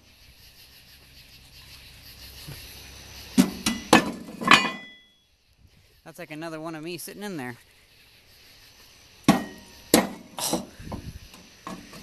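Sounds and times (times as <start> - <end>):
steel plates clanking: 3.4 - 5.1.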